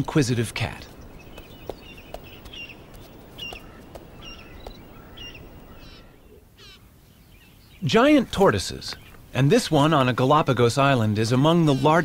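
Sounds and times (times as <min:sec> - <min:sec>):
small birds chirping: 0:00.0 - 0:12.0
bird trill: 0:00.9 - 0:07.8.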